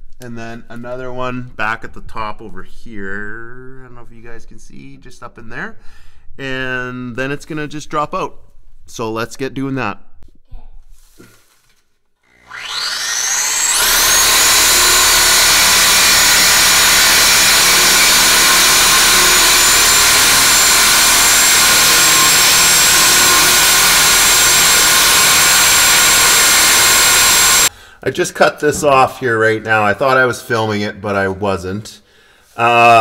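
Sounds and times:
reciprocating saw cutting steel pipe: 12.3 - 27.7.

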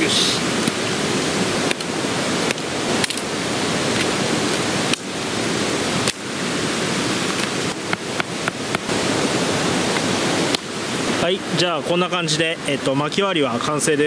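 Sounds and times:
flowing water rushing: 0.0 - 14.0
knife chopping wood: 7.3 - 8.9.

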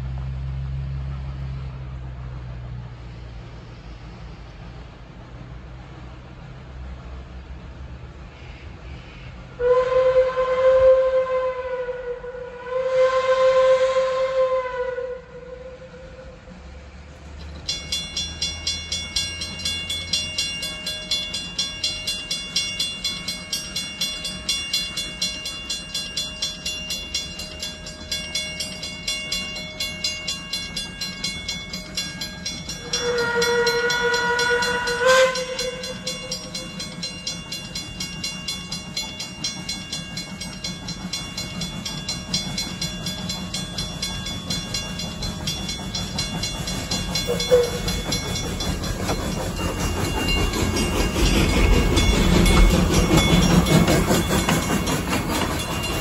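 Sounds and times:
steam whistle blasts: 9.0 - 16.5, 32.8 - 36.6, 47.3 - 48.0
steam engine rhythmic beat: 17.7 - 56.0.

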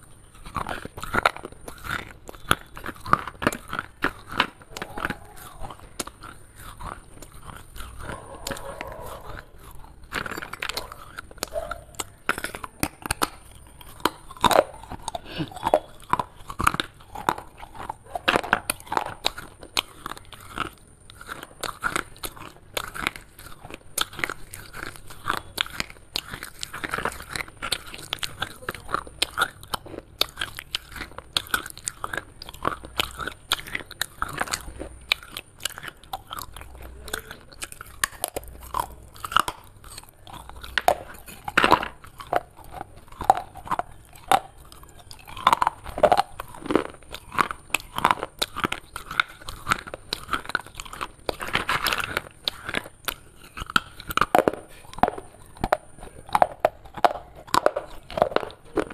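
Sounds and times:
dry clay being chewed: 0.0 - 58.9.

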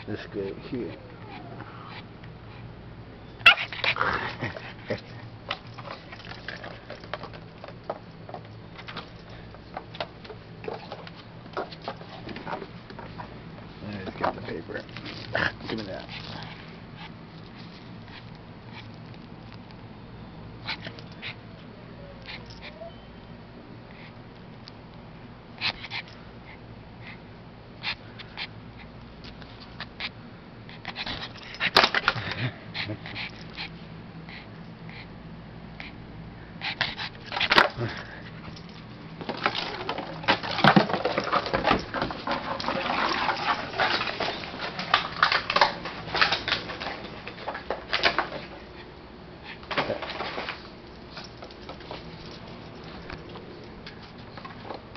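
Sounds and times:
dog whining: 0.8 - 2.1, 3.2 - 5.2, 20.6 - 23.4
crackling and rustling: 37.0 - 48.9, 49.5 - 54.9.

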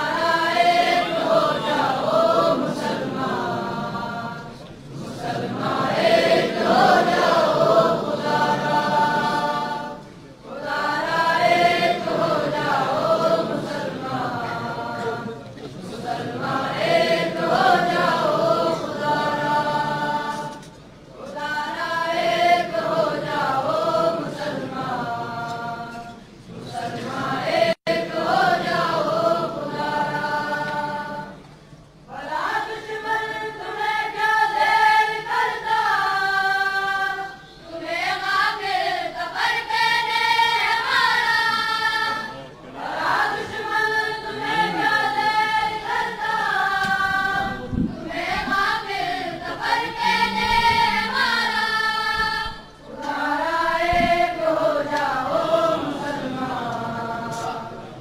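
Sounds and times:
person chant-like singing: 49.4 - 51.6.

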